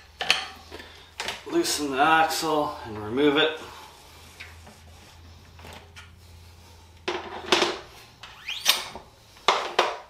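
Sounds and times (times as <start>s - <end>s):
short rising squeak: 8.2s - 9.0s.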